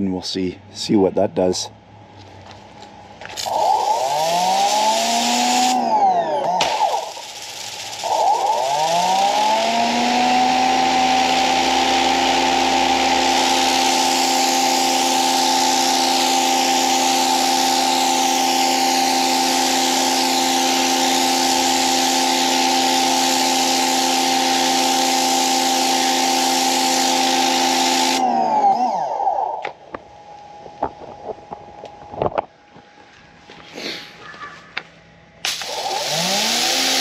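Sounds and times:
pressure washer motor whine: 3.3 - 30.7, 35.5 - 37.0.

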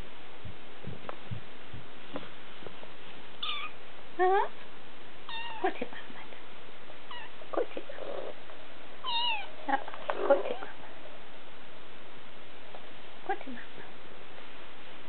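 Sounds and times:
kittens mewing: 3.4 - 3.8, 5.3 - 5.6, 7.1 - 8.4, 9.0 - 11.1.

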